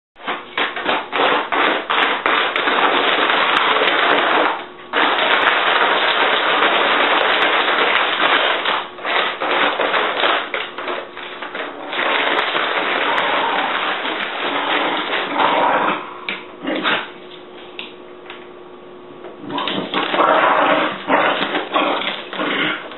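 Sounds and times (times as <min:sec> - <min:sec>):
paper bag crinkling and rustling: 0:00.2 - 0:15.4.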